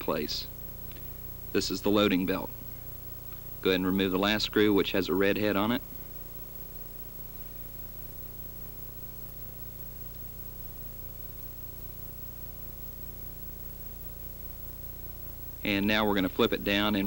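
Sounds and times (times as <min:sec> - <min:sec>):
low electrical hum: 0:00.0 - 0:17.0
tape hiss: 0:00.0 - 0:17.0.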